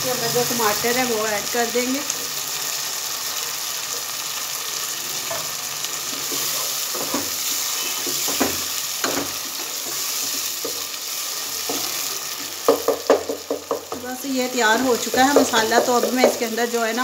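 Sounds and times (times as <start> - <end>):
food sizzling in hot oil: 0.0 - 17.0.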